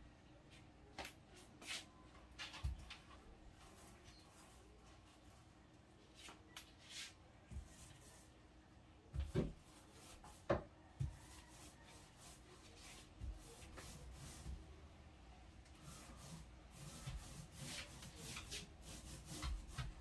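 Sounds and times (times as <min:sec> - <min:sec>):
paint rubbing on wood: 0:03.0 - 0:05.4, 0:09.4 - 0:14.6, 0:15.8 - 0:20.0.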